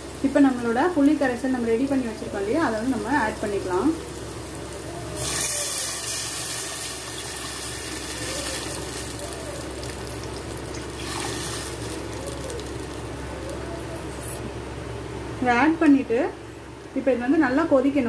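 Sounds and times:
water pouring into a pot: 0:05.2 - 0:12.9.

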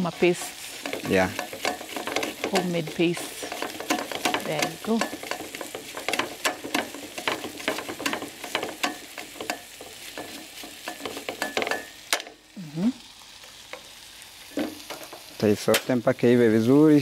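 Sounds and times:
tomato rasping on metal grater: 0:00.0 - 0:09.0.

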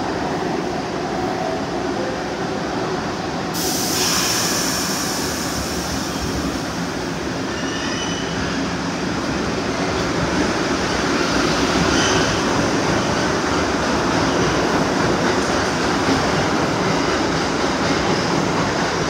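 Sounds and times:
train wheels rumbling on rails: 0:02.8 - 0:19.0
air hiss: 0:03.6 - 0:07.2.

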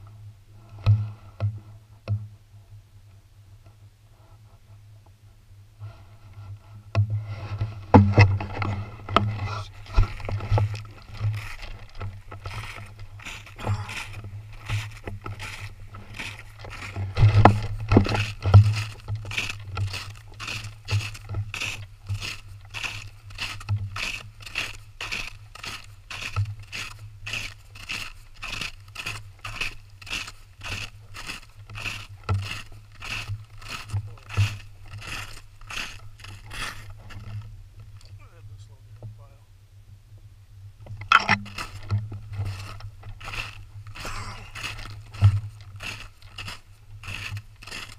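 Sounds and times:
boots crunching through snow: 0:07.2 - 0:38.1, 0:41.2 - 0:47.9.

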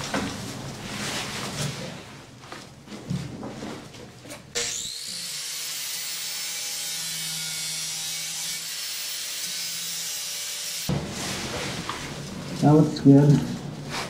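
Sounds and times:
angle grinder whine: 0:04.6 - 0:10.9.

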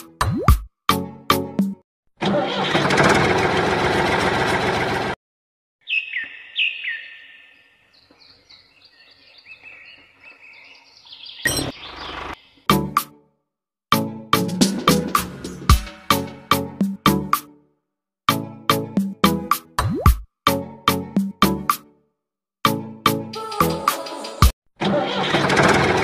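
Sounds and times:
loud rough noise: 0:02.3 - 0:05.2, 0:25.1 - 0:26.0
bird chirping: 0:05.8 - 0:12.7.

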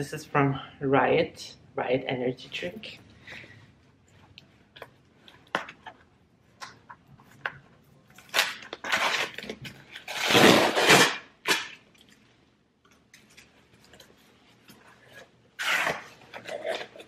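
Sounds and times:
tape and packaging ripping: 0:08.1 - 0:12.2, 0:15.6 - 0:17.0.

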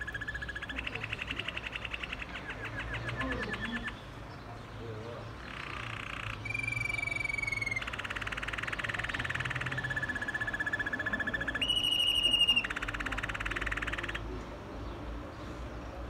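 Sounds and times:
canary singing whistles and trills: 0:00.0 - 0:04.2, 0:05.4 - 0:14.2.

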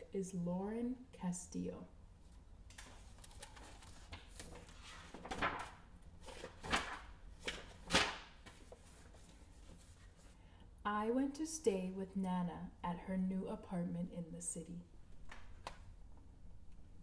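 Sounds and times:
paper rustling: 0:02.2 - 0:10.4
book page flaps: 0:02.7 - 0:09.8.

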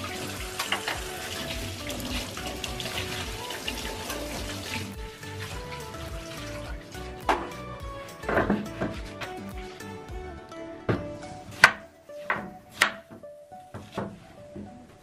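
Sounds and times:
tap water splashing into pan: 0:00.0 - 0:01.6
hands rinsing pieces in water: 0:00.0 - 0:07.6.

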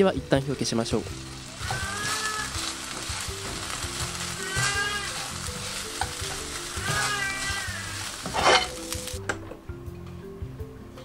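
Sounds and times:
food sizzling in a frying pan: 0:00.2 - 0:09.2.

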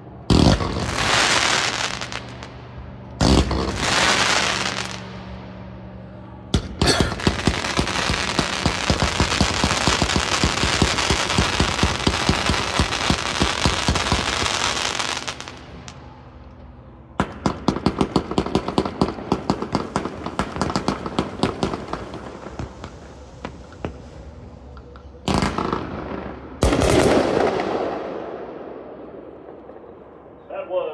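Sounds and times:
fireworks rapid shots and crackling: 0:00.3 - 0:02.5, 0:03.2 - 0:05.2, 0:06.6 - 0:15.6, 0:17.2 - 0:24.0, 0:26.6 - 0:28.0
sharp firework reports: 0:00.3 - 0:05.7, 0:06.5 - 0:16.0, 0:17.2 - 0:24.5, 0:25.3 - 0:29.4.

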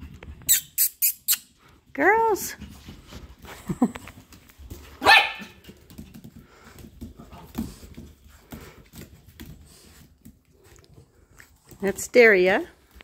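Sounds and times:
puppy barking: 0:05.0 - 0:05.6.

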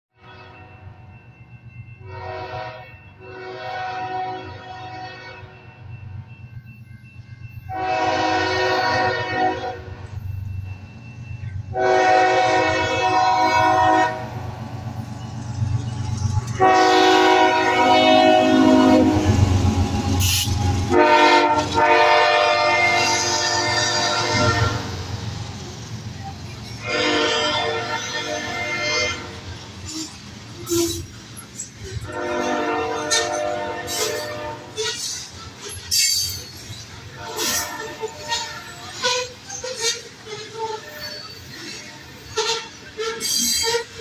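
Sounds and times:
locomotive and freight cars rumbling: 0:00.2 - 0:44.0
locomotive air horn blasts: 0:02.0 - 0:05.7, 0:07.7 - 0:10.1, 0:11.7 - 0:14.5, 0:16.6 - 0:25.0, 0:26.8 - 0:29.5, 0:32.0 - 0:35.2, 0:37.1 - 0:41.4, 0:42.3 - 0:44.0.

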